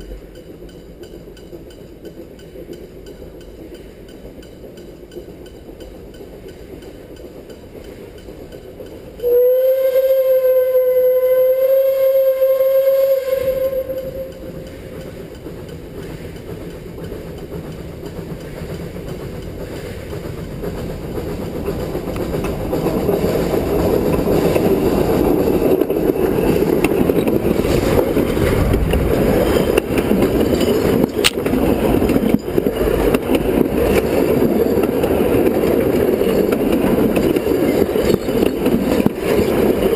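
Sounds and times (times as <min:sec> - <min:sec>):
train wheels rolling on rails: 0:00.0 - 0:39.9
steam whistle blast: 0:09.2 - 0:14.5.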